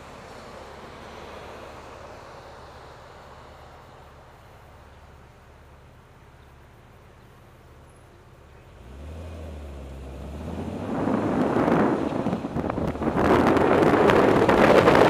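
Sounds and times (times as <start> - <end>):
car engine idling and revving: 0.0 - 15.0
road noise: 0.0 - 15.0
wind rushing over microphone: 10.1 - 15.0.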